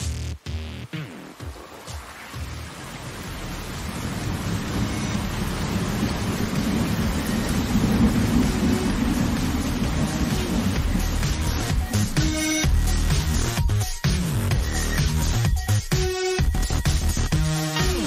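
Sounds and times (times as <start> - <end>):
heavy rain on leaves: 0.0 - 18.0
thunder rumbling: 1.3 - 13.8.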